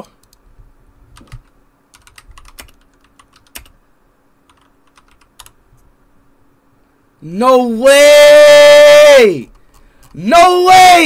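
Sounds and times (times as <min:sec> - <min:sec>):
keyboard typing clicks: 0:01.2 - 0:03.8, 0:04.5 - 0:05.6.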